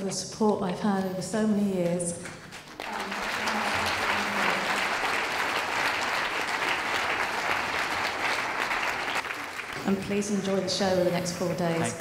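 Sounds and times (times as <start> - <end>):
audience applauding: 2.4 - 10.6.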